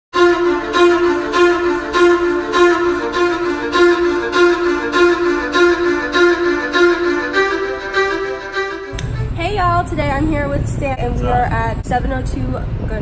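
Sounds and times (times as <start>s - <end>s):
background music with pulsing notes: 0.2s - 9.5s.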